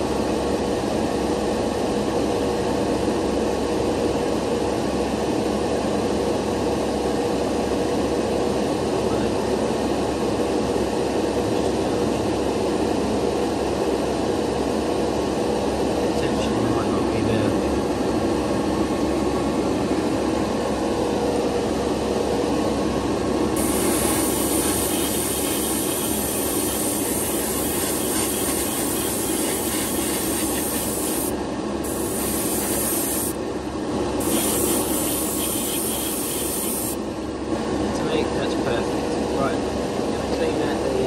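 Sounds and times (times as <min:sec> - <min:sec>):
extractor fan running: 0:00.0 - 0:41.0
paint spray hiss: 0:23.6 - 0:33.4, 0:34.2 - 0:37.0.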